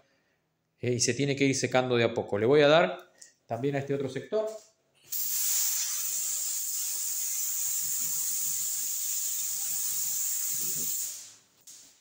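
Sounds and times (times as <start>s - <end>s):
spray gun hissing: 5.1s - 11.8s.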